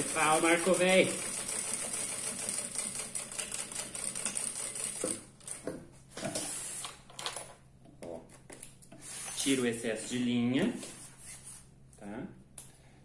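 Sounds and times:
sewing machine running: 0.0s - 5.6s.

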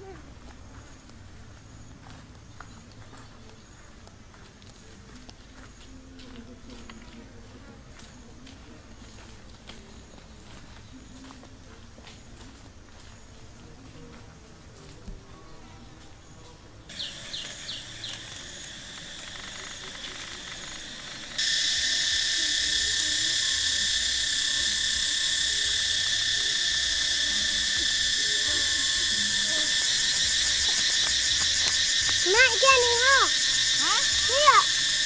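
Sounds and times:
insect chorus: 15.7s - 35.0s
insect chirps: 16.9s - 35.0s
fast pulsing trill: 17.9s - 35.0s.

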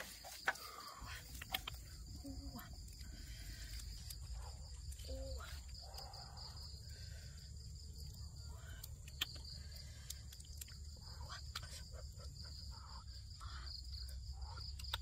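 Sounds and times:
crickets chirping: 0.0s - 15.0s
sharp clicks: 8.6s - 10.8s.

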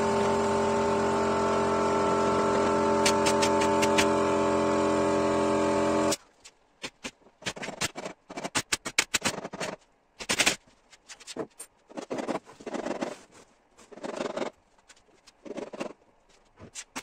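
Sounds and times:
air compressor motor humming: 0.0s - 6.2s.

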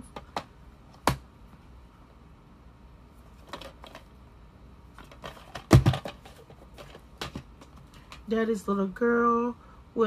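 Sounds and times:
plastic cases clicking and knocking: 3.4s - 4.1s, 5.0s - 8.3s.

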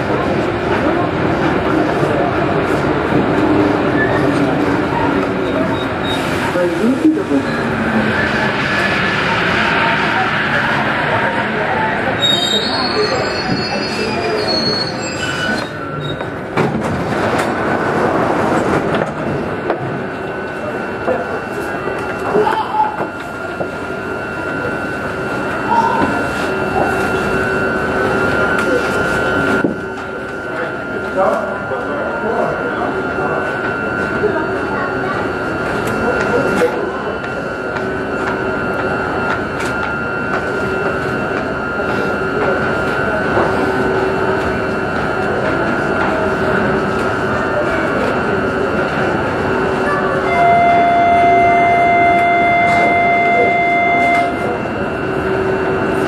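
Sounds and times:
train running through tunnel: 0.0s - 56.0s
faint whine: 50.4s - 56.0s.

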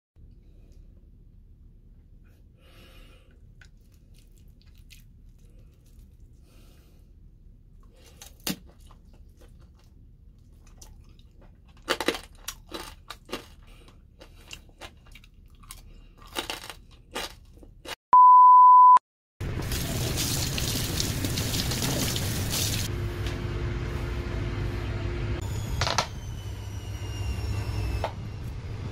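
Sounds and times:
crispy food crunching bites: 3.6s - 6.3s, 8.0s - 18.0s
electronic beep: 18.2s - 19.0s.

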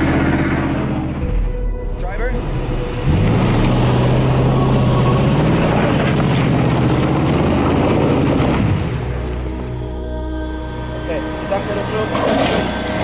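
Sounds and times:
pickup engine pulling under load: 0.0s - 1.6s, 2.4s - 13.0s
tyres churning over wet gravel: 3.1s - 9.4s, 11.4s - 13.0s.

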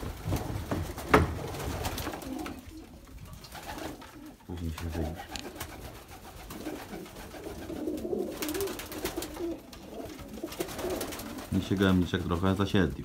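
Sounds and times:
pigeon wingbeats: 0.0s - 12.6s
pigeons cooing: 1.9s - 11.5s.

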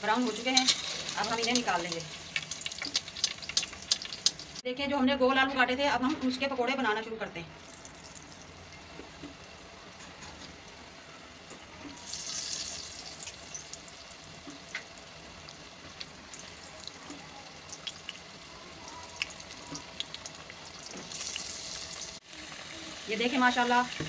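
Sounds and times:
oil popping and crackling: 0.0s - 4.6s, 7.6s - 10.8s, 11.4s - 22.3s
frying in hot oil: 0.0s - 4.7s, 7.6s - 24.0s.

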